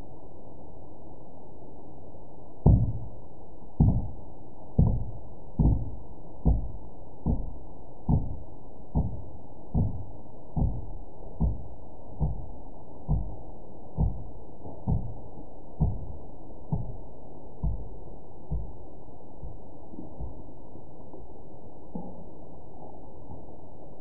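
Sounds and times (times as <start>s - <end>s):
dull thumps: 2.6s - 3.2s, 3.8s - 21.1s.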